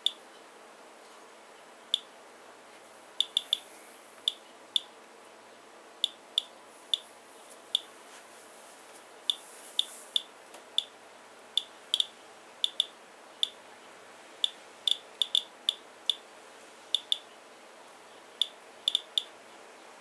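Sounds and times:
geiger counter clicking: 0.0 - 0.2, 3.2 - 3.6, 6.0 - 6.5, 11.6 - 13.6, 14.4 - 16.2, 17.0 - 17.2, 18.4 - 19.3.

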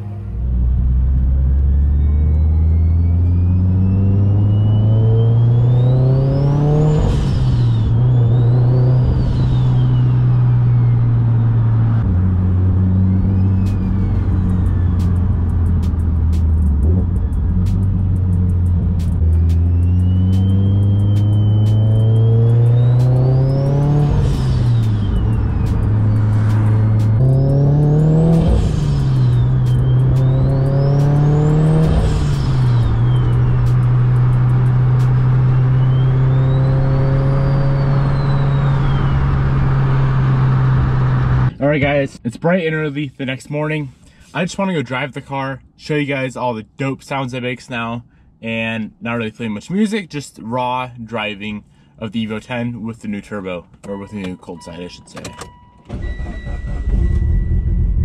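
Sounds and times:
car engine revving through gears: 0.6 - 41.8.

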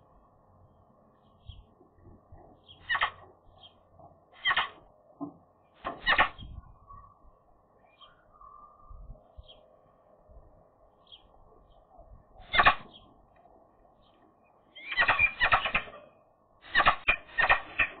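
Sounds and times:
magpie harsh chattering calls: 2.8 - 3.2, 4.4 - 4.8, 6.0 - 6.4, 12.4 - 13.0, 14.8 - 15.9, 16.6 - 18.0.

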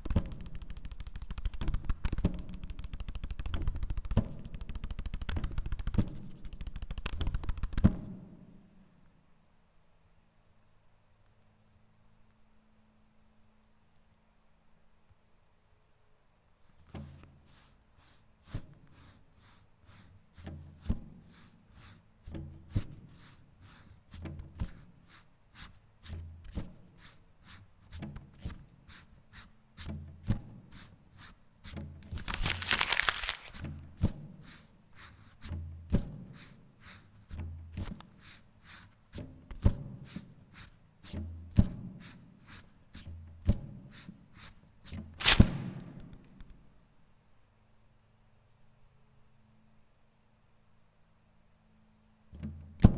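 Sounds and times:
sharp paper clicks: 0.0 - 8.0, 32.0 - 33.7, 45.2 - 46.2
loud paper hit: 0.0 - 8.2, 32.0 - 33.7, 45.2 - 46.1
burst of paper noise: 32.0 - 33.7, 45.2 - 45.9.

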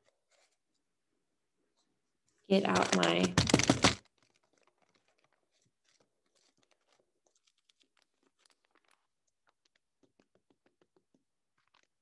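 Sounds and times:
plastic cup crackling: 2.5 - 12.0.

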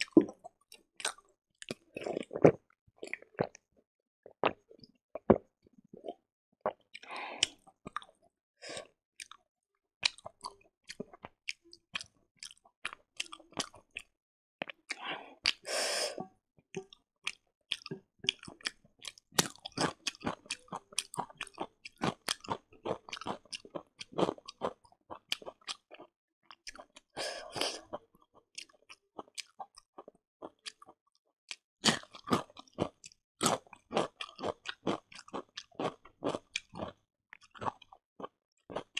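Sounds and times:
person chewing with wet smacks: 9.2 - 9.4, 10.0 - 15.6, 16.8 - 27.9, 28.6 - 38.9.

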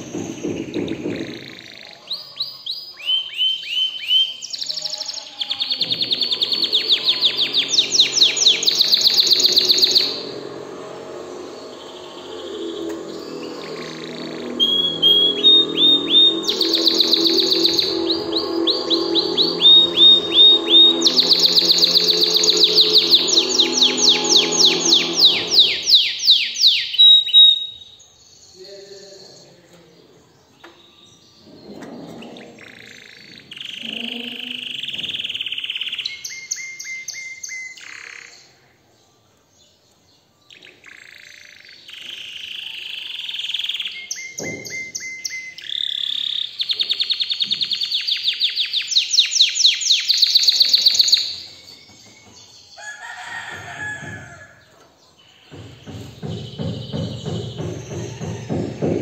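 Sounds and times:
canary singing trills: 0.0 - 29.5.

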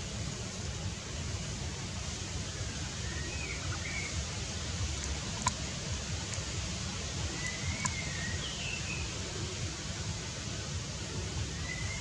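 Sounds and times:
outdoor background hiss: 0.0 - 12.0
faint clicks: 5.0 - 6.5, 7.4 - 8.0
faint short whistled calls: 7.4 - 9.0.

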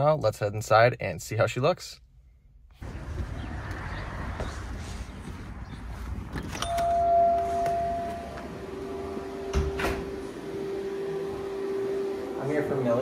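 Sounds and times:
door opening click: 6.4 - 8.6, 9.4 - 10.2
low steady hum: 6.5 - 13.0
steady electronic tone: 6.8 - 13.0.

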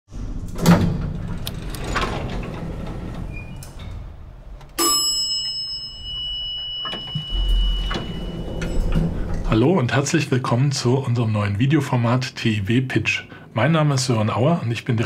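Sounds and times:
elevator chime ding: 4.8 - 9.6
low rumble: 7.2 - 10.2.

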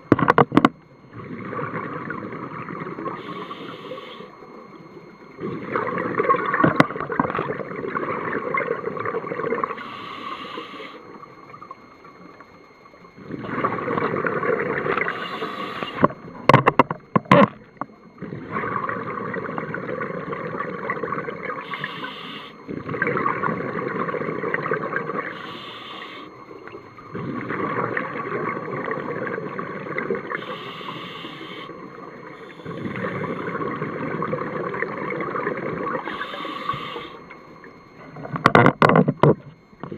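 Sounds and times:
hissing inhalations: 21.7 - 22.5, 25.4 - 26.3, 30.4 - 31.7, 36.1 - 37.2.

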